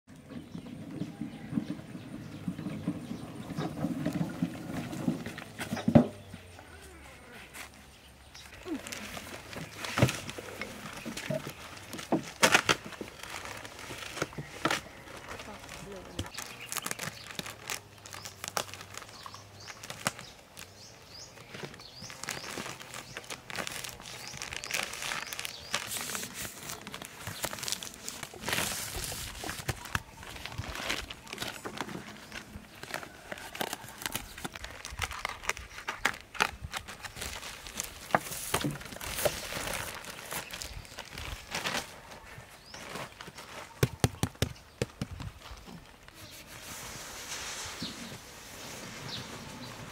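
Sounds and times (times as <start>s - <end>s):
plastic wrapping crinkling and tearing: 6.8s - 49.9s.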